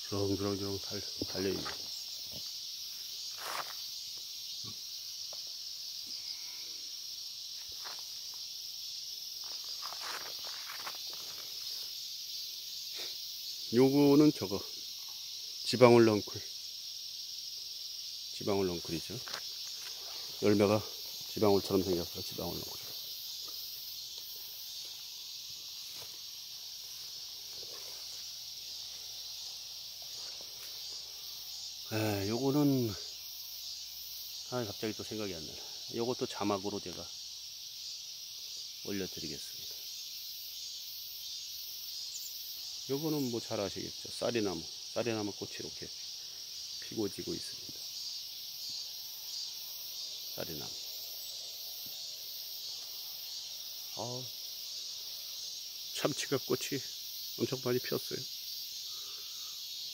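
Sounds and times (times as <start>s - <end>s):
insects chorus: 0.0s - 59.9s
footsteps through grass: 1.4s - 4.2s, 7.5s - 8.5s, 9.3s - 12.0s, 18.8s - 31.3s
rustling through grass: 24.2s - 31.2s.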